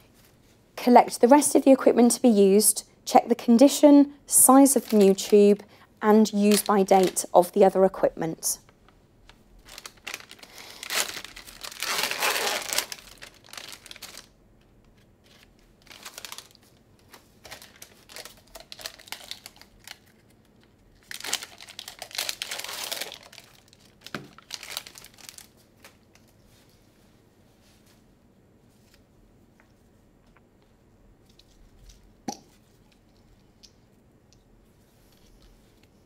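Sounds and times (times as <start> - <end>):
packaging crinkling and tearing: 4.6 - 5.6, 6.2 - 7.7, 8.6 - 26.4.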